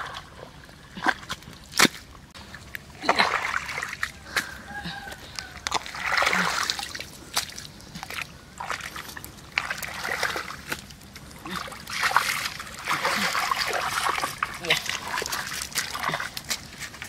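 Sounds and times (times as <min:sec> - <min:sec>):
water splashing and sloshing: 0:00.0 - 0:17.0
hands slapping wet mud: 0:01.0 - 0:02.1.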